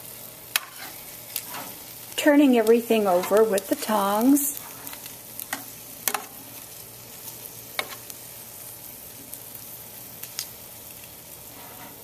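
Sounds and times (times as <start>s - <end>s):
food sizzling in hot pan: 0.0s - 12.0s
metal tongs clicking on pan: 3.2s - 3.8s, 5.4s - 6.3s.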